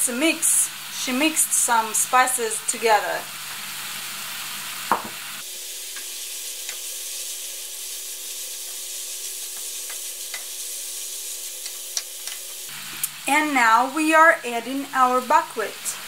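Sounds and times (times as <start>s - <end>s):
meat and carrot sizzling in pan: 0.0s - 16.0s.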